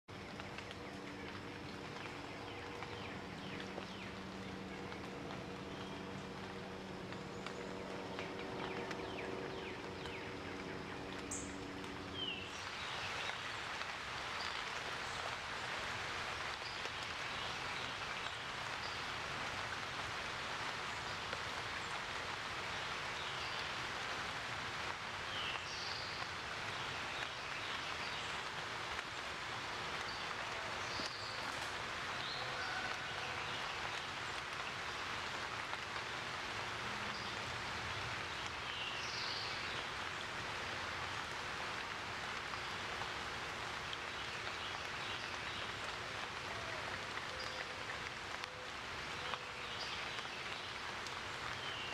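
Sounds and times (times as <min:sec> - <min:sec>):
low steady hum: 0:00.1 - 0:22.7.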